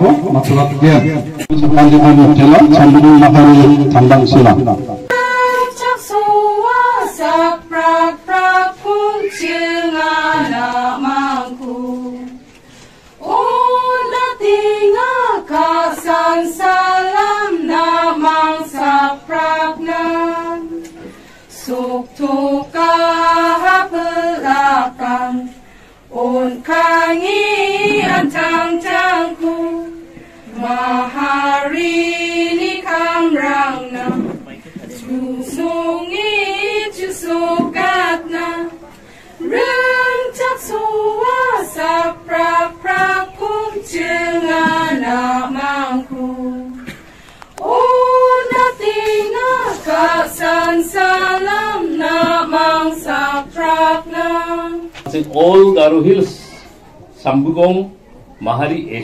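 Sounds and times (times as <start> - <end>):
women singing without instruments: 5.1 - 12.5, 13.2 - 20.9, 21.5 - 46.9, 47.6 - 55.0.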